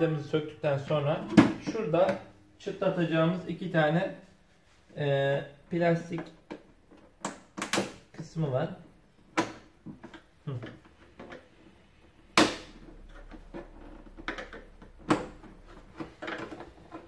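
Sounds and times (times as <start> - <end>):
plastic housing knocking and rattling: 12.8 - 17.0.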